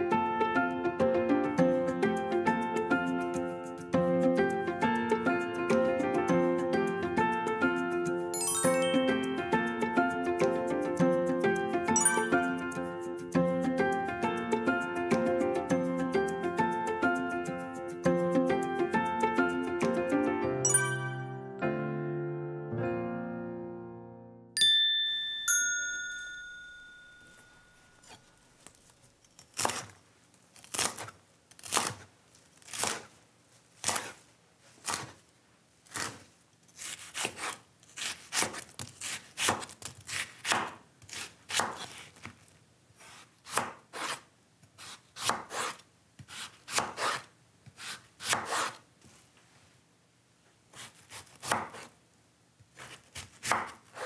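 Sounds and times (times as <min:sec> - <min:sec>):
chime ringing: 0:08.3 - 0:09.4, 0:12.0 - 0:12.7, 0:20.6 - 0:21.6, 0:24.6 - 0:28.2
knife chopping on wooden board: 0:36.8 - 0:42.0, 0:43.0 - 0:44.2, 0:44.8 - 0:48.8, 0:50.8 - 0:51.9, 0:52.8 - 0:54.0.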